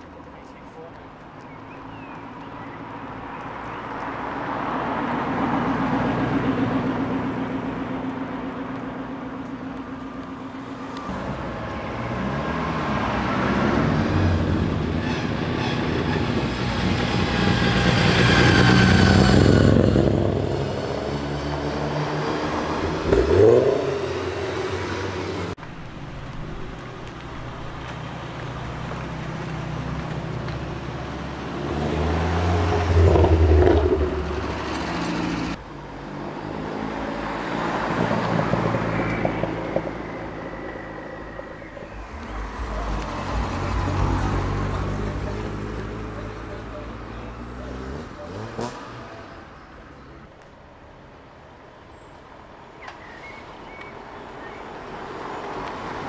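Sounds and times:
car engine pulling away: 0:02.3 - 0:50.2
cars accelerating past: 0:03.4 - 0:25.6, 0:28.4 - 0:50.0.

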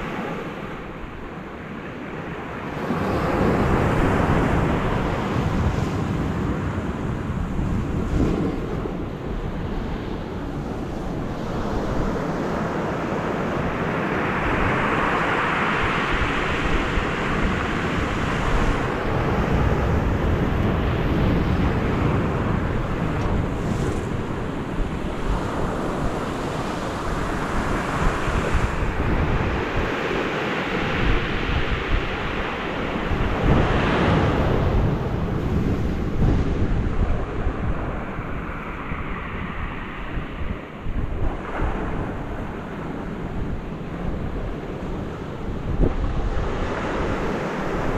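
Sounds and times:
wind buffeting microphone: 0:00.0 - 0:47.9.

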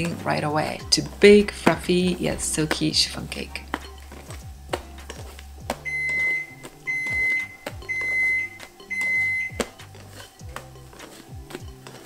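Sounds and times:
oven beeps: 0:05.8 - 0:09.7.

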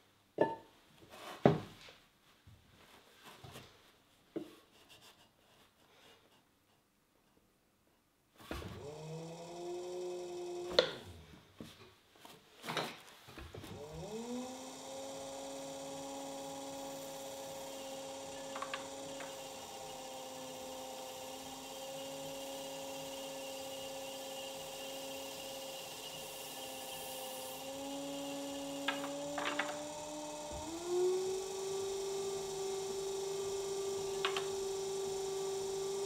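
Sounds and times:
pottery wheel motor humming: 0:08.6 - 0:11.2, 0:13.6 - 0:36.0.

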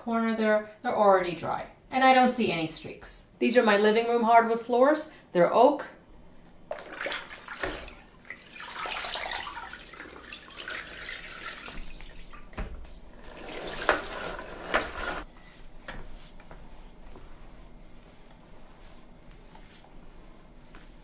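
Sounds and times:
water sloshing in mop bucket: 0:06.7 - 0:15.3.

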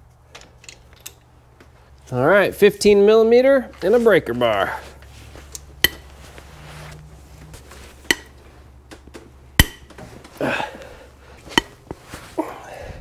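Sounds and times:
bolts cracking loose with ring: 0:08.0 - 0:10.0.

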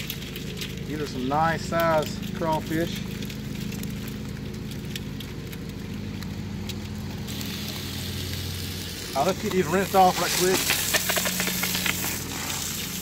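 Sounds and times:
crawfish clicking in metal basket: 0:00.0 - 0:07.7, 0:09.2 - 0:12.2
low mechanical hum: 0:00.0 - 0:13.0
bright hiss: 0:07.3 - 0:13.0.

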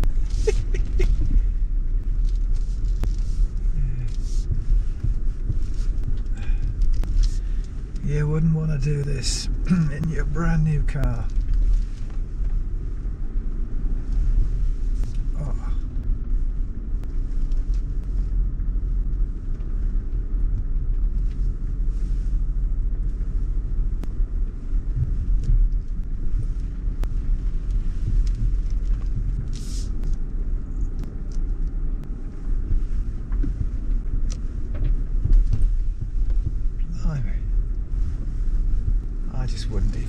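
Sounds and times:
off-road vehicle engine running: 0:00.0 - 0:40.0
vehicle body knocks and creaks: 0:32.0 - 0:36.8.

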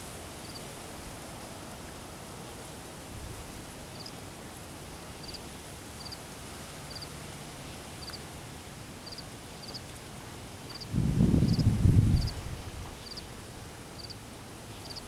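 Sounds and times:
steady outdoor hiss: 0:00.0 - 0:15.0
cricket chirping: 0:00.4 - 0:00.6, 0:04.0 - 0:04.2, 0:06.9 - 0:07.1, 0:09.0 - 0:09.8, 0:11.5 - 0:12.4, 0:13.0 - 0:13.2, 0:14.0 - 0:14.2.

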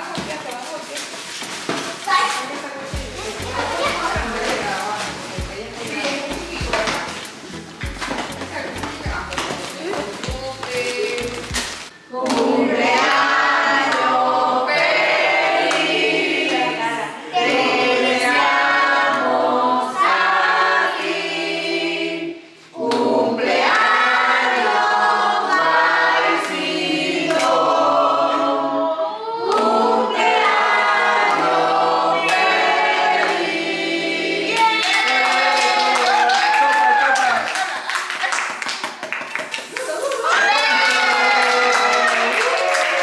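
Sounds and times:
group singing a birthday song: 0:02.6 - 0:36.6.

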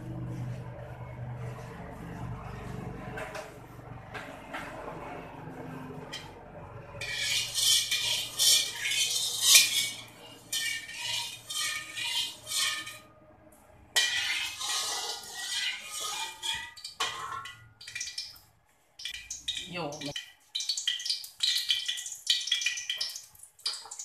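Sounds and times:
metal spatula scraping a wok: 0:07.0 - 0:13.2, 0:13.9 - 0:18.1.

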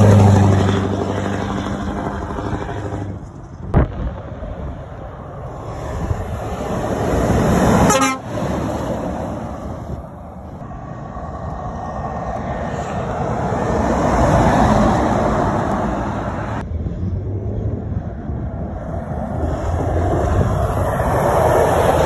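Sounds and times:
lorries driving past: 0:00.0 - 0:22.0
short horn toot: 0:07.9 - 0:08.3.

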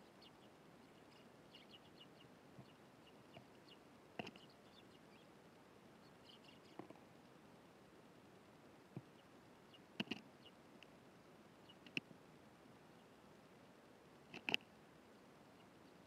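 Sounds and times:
sparrows chirping: 0:00.0 - 0:05.4, 0:06.0 - 0:06.9, 0:09.0 - 0:10.6.

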